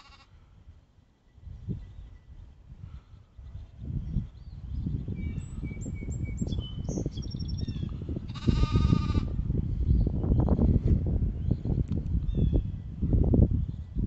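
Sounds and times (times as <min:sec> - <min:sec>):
bleat-like animal call: 0:00.0 - 0:00.4, 0:08.3 - 0:09.4
small birds chirping: 0:03.4 - 0:08.0.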